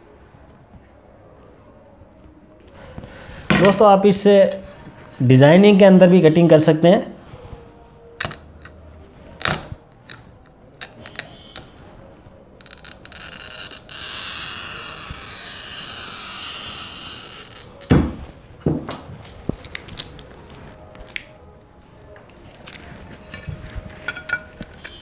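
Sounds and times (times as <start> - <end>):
glass cutter scoring glass: 9.4 - 11.8, 12.6 - 18.0.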